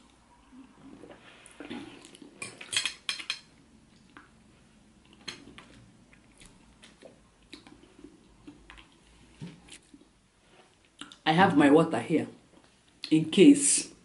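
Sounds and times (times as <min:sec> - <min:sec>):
cutlery clinking on plate: 0:02.4 - 0:03.5.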